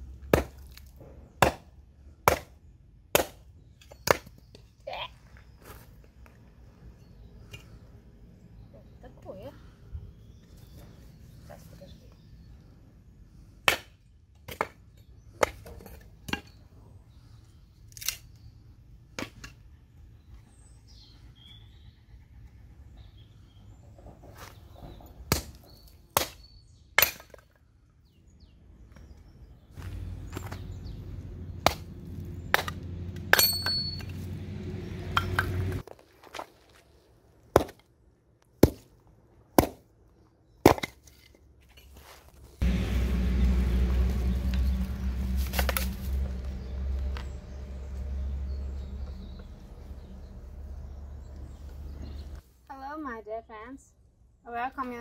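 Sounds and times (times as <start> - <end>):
low rumble: 42.6 - 51.7.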